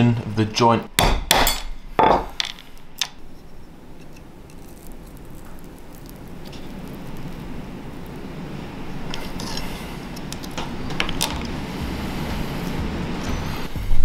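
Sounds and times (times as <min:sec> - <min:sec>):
metal pick scraping crab shell: 0:01.4 - 0:07.4, 0:08.9 - 0:11.6.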